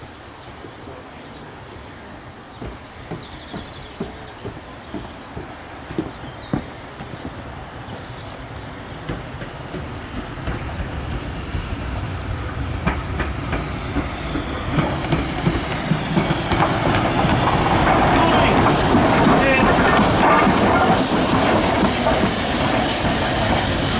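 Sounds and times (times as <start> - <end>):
steam locomotive approaching: 0.0 - 23.9
steam hissing: 2.6 - 23.9
wheels clicking over rail joints: 12.7 - 23.9.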